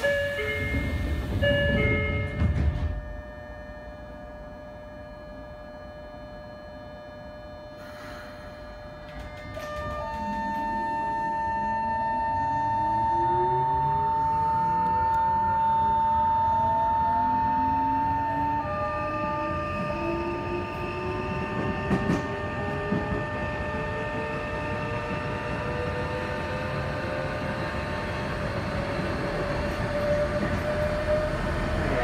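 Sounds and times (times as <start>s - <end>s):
rail-joint clacks: 0.0s - 3.2s, 9.0s - 10.8s, 21.5s - 23.4s
wheel and rail rumble: 0.0s - 3.2s, 19.3s - 32.0s
train high whine: 0.0s - 32.0s.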